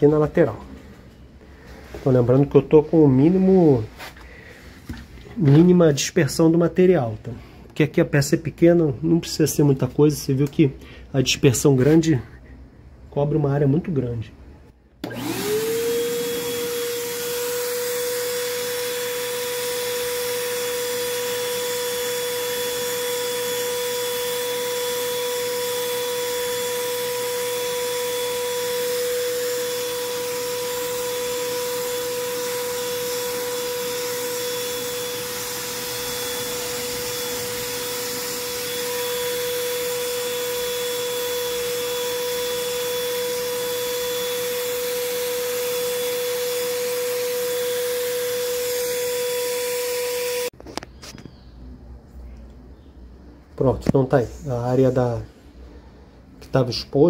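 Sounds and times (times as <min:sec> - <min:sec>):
electric paint spray gun whine: 0:15.0 - 0:50.6.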